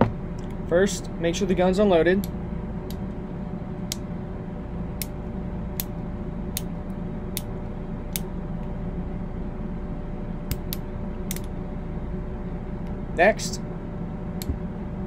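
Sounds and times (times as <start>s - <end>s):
steady low hum: 0.0s - 15.0s
revolver cylinder clicking: 5.0s - 7.5s.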